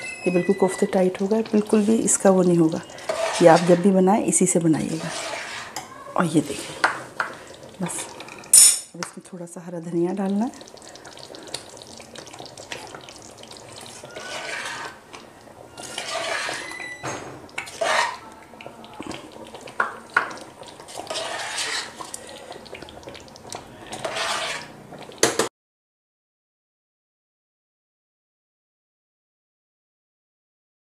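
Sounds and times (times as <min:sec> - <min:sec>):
spoon scraping a cooking pot: 0:00.2 - 0:08.9, 0:12.3 - 0:18.3, 0:19.0 - 0:22.6, 0:23.5 - 0:25.5.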